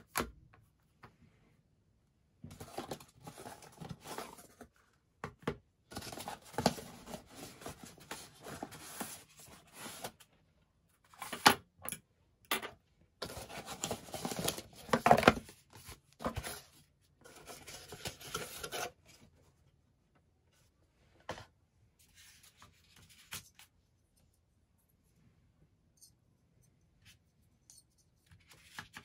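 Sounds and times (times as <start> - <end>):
cardboard and paper rustling: 2.4 - 4.8, 5.9 - 10.3, 13.2 - 19.4.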